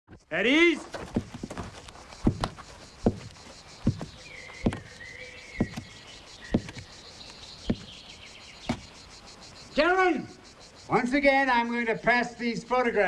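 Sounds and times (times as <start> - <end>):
slow footsteps on hard floor: 0.9 - 5.0, 5.6 - 6.9.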